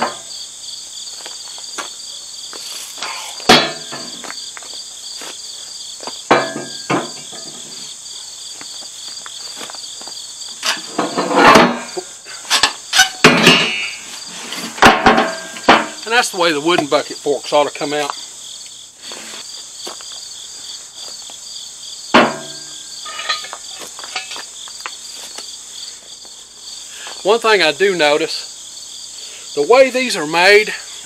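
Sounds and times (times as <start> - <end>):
insect chorus: 0.0 - 31.0
wooden board knocking in metal bucket: 3.5 - 4.3, 6.3 - 7.8, 10.6 - 12.0, 12.6 - 14.0, 14.7 - 16.0, 22.1 - 24.4.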